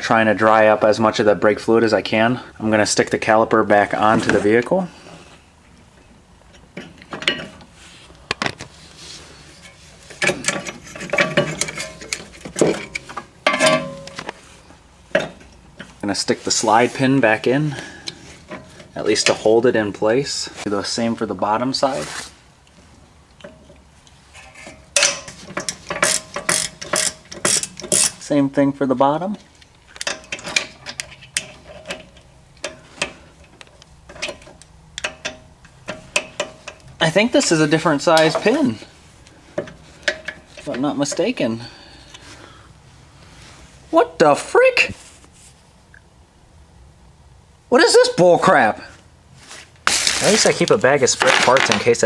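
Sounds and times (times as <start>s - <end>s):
brake caliper metal clinks: 10.2s - 14.3s
hand ratchet clicking: 25.0s - 28.2s.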